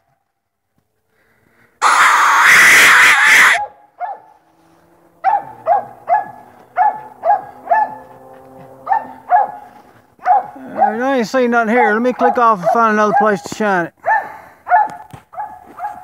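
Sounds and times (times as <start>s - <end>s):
dog barking: 3.6s - 4.4s, 5.2s - 16.0s.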